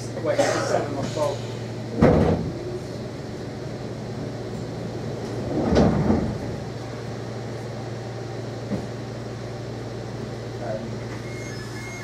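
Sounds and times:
train carriage hum: 0.0 - 12.0
sliding door shutting: 1.9 - 2.6, 5.3 - 6.6.

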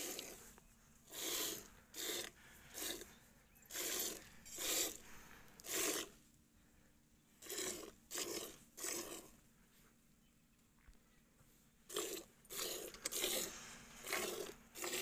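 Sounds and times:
milk squirting into a bucket: 0.0 - 6.2, 7.4 - 9.4, 11.9 - 15.0.

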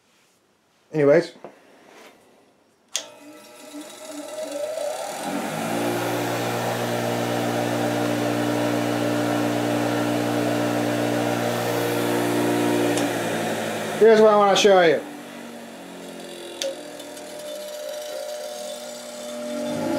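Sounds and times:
bench grinder motor humming: 3.0 - 19.9.

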